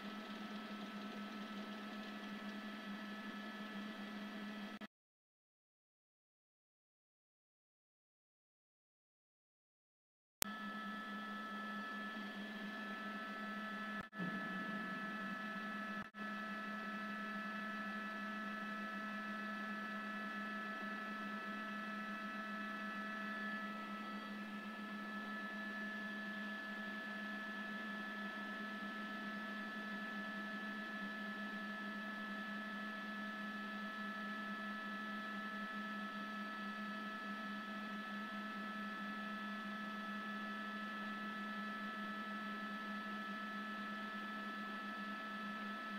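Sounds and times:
steady hum: 0.0 - 4.8, 10.4 - 30.1.

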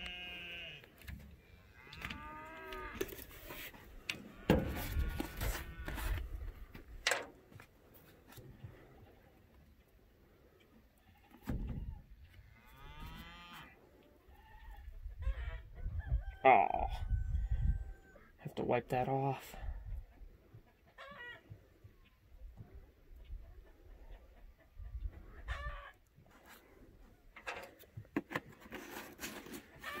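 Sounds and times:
cattle mooing: 1.8 - 3.2, 12.5 - 13.7.

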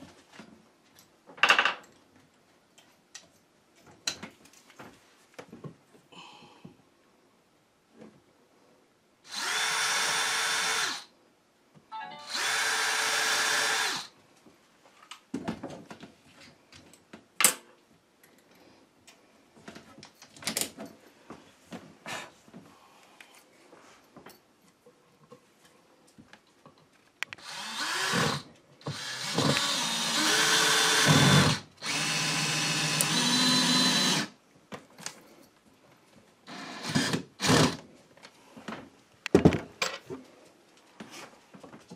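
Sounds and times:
cordless drill drilling into wood: 9.3 - 11.1, 12.2 - 14.1, 27.4 - 34.4, 36.5 - 37.8.

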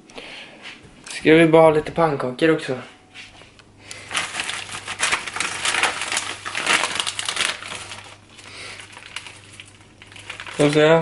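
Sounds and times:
plastic bag crinkling: 3.9 - 11.0.

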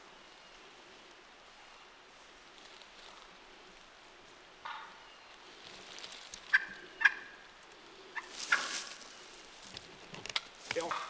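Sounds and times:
wild turkeys gobbling: 4.6 - 5.1, 6.4 - 9.5.

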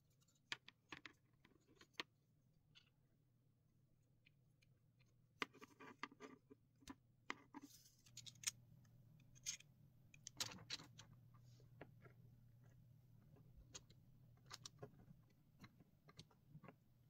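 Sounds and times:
plastic parts clicking and scraping: 7.3 - 8.6, 9.2 - 16.8.

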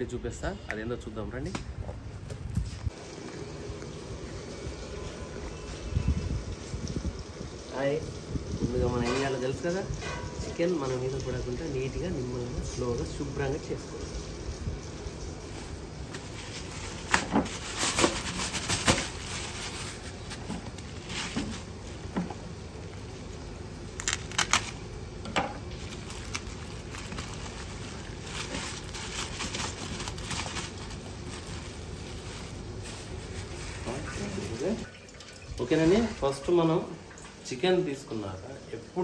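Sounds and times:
plastic bag crinkling: 16.1 - 22.1, 23.8 - 25.0, 25.6 - 34.9
knife slitting plastic bag: 16.2 - 21.8, 24.0 - 24.9, 25.7 - 34.9
sharp crackles: 23.9 - 24.8, 25.7 - 33.7.

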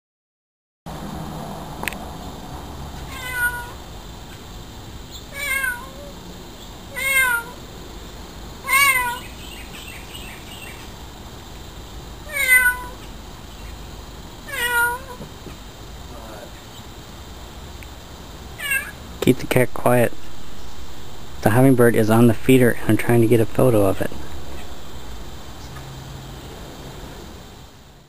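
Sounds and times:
cat meowing: 3.1 - 3.8, 5.3 - 6.2, 6.9 - 7.6, 8.6 - 9.3, 12.2 - 13.0, 14.4 - 15.3, 18.6 - 19.0.

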